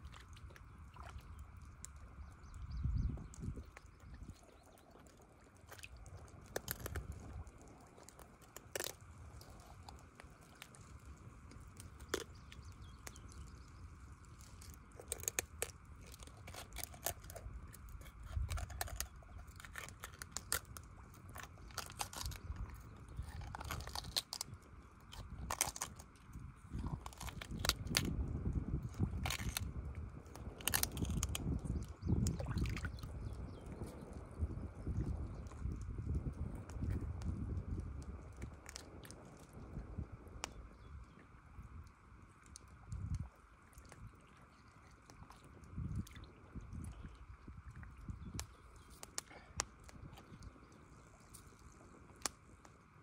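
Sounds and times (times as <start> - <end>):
small water splashes: 0.0 - 24.6, 41.2 - 53.0
wet clicks and crunches: 0.0 - 34.4, 35.0 - 40.6, 48.0 - 53.0.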